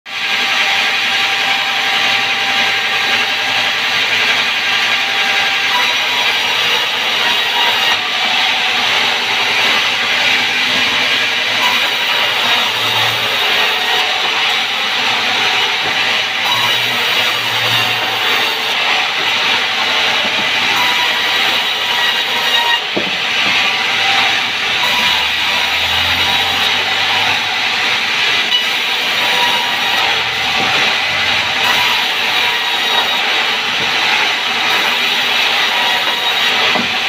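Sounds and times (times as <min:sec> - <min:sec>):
band saw cutting log: 0:00.1 - 0:37.0.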